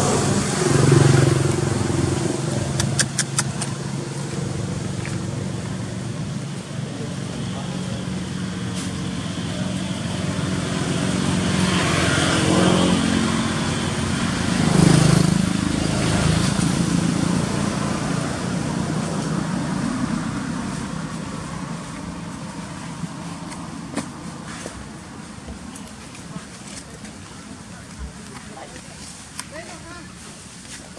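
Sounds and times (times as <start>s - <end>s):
vehicle engine passing by: 0.0s - 23.2s.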